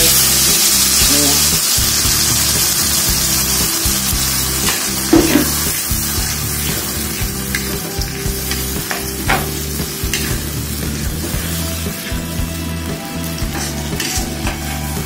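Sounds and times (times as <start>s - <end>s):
spice paste sizzling in hot oil: 0.0s - 15.0s
metal spatula scraping a pan: 13.1s - 15.0s.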